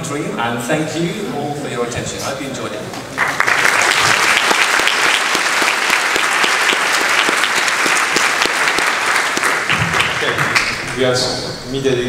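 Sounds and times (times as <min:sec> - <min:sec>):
audience applauding: 0:03.1 - 0:11.1.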